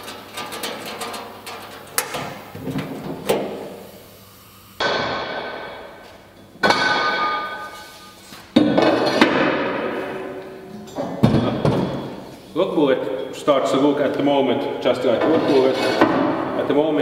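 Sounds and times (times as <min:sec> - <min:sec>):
metal clanks ringing: 0:10.2 - 0:12.3.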